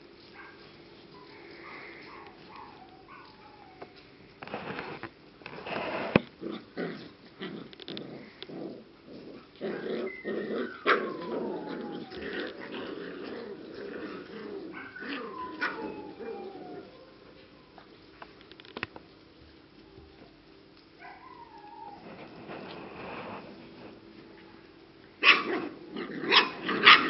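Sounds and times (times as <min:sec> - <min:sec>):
puppies play-growling and yipping: 0:00.0 - 0:27.0
puppy high whining cries: 0:02.1 - 0:04.0, 0:10.0 - 0:12.6, 0:14.7 - 0:17.8, 0:21.0 - 0:22.2.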